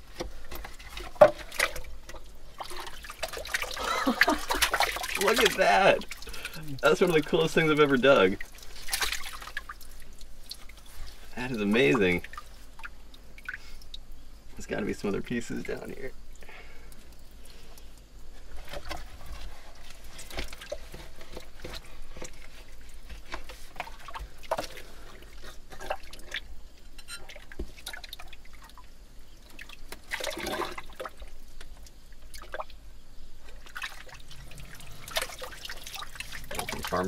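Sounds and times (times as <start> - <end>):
hands splashing in muddy water: 2.5 - 7.2, 8.4 - 10.7.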